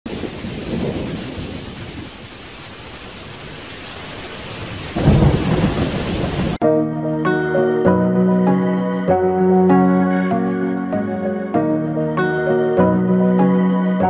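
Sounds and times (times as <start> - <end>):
rain hissing: 0.1 - 6.6
thunder rumbling: 0.1 - 6.6.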